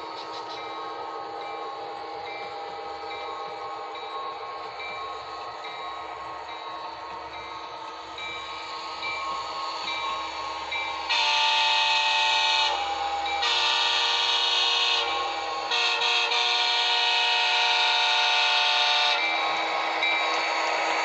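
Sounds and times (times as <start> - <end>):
model locomotive horn: 11.1 - 19.5.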